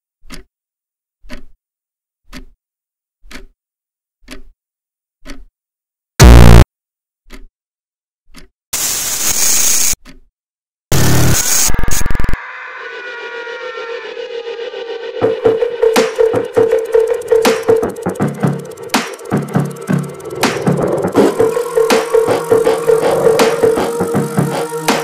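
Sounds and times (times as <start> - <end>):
clock ticking: 0.2 - 0.5, 1.2 - 1.6, 2.3 - 2.6, 3.2 - 3.6, 4.2 - 4.5, 5.2 - 5.5, 7.3 - 7.5, 8.3 - 8.5, 15.2 - 25.0
harsh static bursts: 6.2 - 6.6, 8.8 - 10.0, 10.9 - 12.4
loud distorted buzz: 6.2 - 6.6, 10.9 - 25.0.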